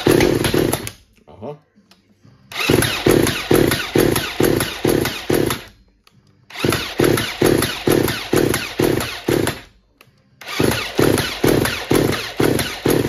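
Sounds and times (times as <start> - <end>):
chainsaw engine cranking: 2.5 - 5.7, 6.5 - 9.6, 10.4 - 13.0.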